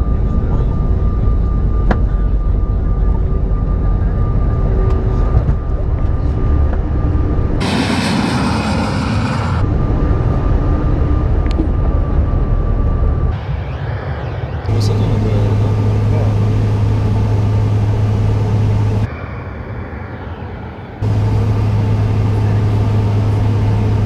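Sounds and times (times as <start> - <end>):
airliner cabin rumble: 0.0 - 13.4, 14.6 - 24.0
thin steady whine: 0.0 - 24.0
jet taking off hiss: 7.6 - 9.6.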